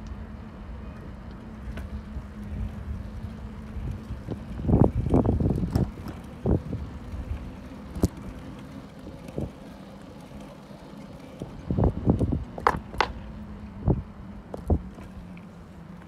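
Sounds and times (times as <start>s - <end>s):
low rumble of bicycle on paving: 0.0s - 16.0s
wind buffeting microphone: 0.3s - 15.3s
bicycle bumping rattles: 1.4s - 13.4s.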